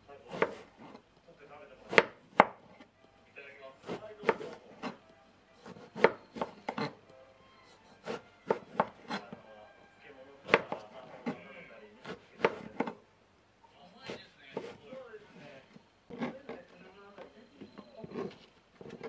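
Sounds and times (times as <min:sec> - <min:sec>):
knife chopping on cutting board: 0:00.3 - 0:01.0, 0:01.8 - 0:02.9, 0:03.8 - 0:07.0, 0:07.7 - 0:09.4, 0:10.4 - 0:13.0, 0:14.0 - 0:14.8, 0:16.1 - 0:16.4.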